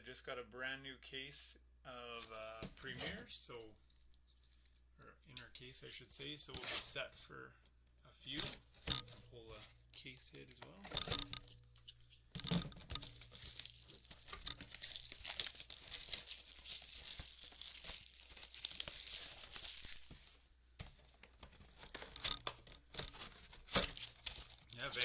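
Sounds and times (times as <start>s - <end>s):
plastic shrink-wrap tearing: 12.6s - 20.4s, 21.7s - 25.0s.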